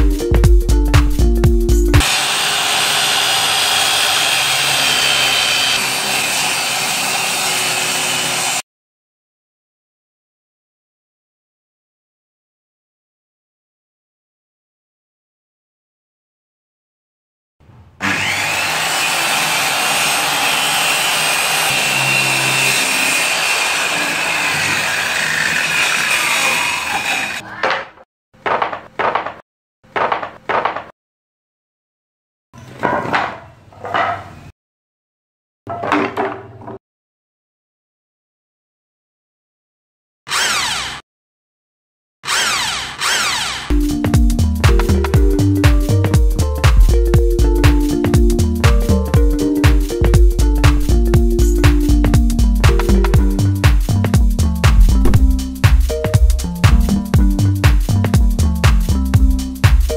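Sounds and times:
beat-driven background music: 0.0 - 2.0, 43.7 - 59.9
circular saw cutting board: 2.0 - 8.6, 17.7 - 27.5, 40.3 - 41.0, 42.2 - 43.8, 54.6 - 57.1.

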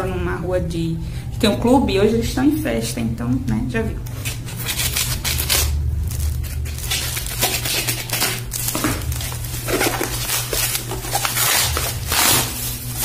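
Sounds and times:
low steady hum: 0.0 - 13.0
cardboard scraping and rustling: 4.2 - 13.0
scissors cutting cardboard: 4.2 - 13.0.

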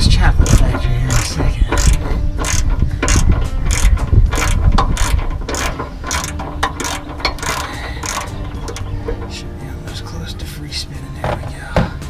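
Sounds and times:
ratchet wrench clicking: 0.4 - 9.4.

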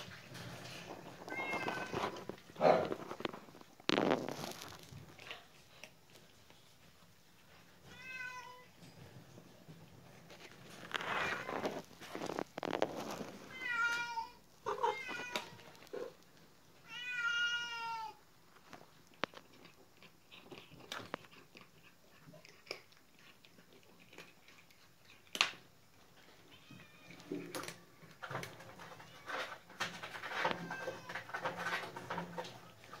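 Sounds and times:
cats crunching kibble: 0.0 - 7.9, 9.2 - 33.0
cat meowing: 1.2 - 2.2, 13.5 - 16.1, 16.8 - 18.2.

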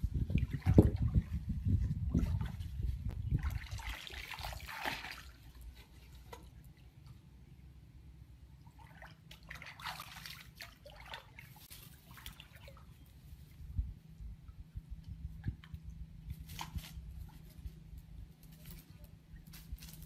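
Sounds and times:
water trickling and splashing: 0.0 - 7.4, 8.4 - 13.8
low steady hum: 4.7 - 20.0.

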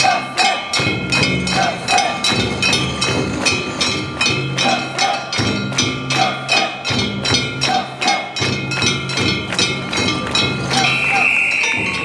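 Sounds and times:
ringing metallic tones: 0.0 - 12.0
sharp percussion strikes: 0.0 - 12.0.

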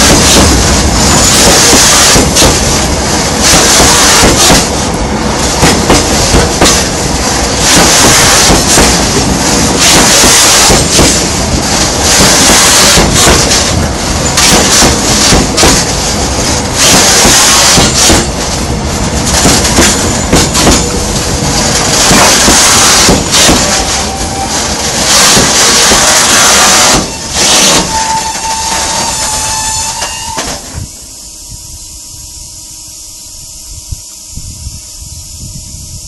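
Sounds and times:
wheels clacking over rail joints: 0.0 - 30.7
train wheels rumbling: 0.0 - 32.4.

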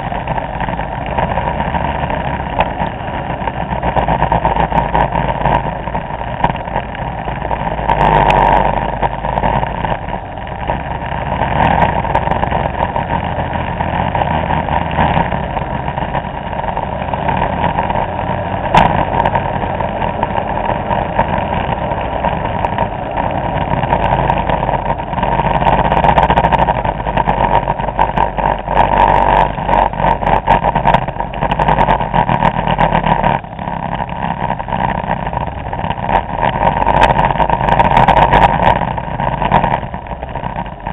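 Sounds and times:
scooter engines running: 0.0 - 40.9
wind on microphone: 0.0 - 40.9.

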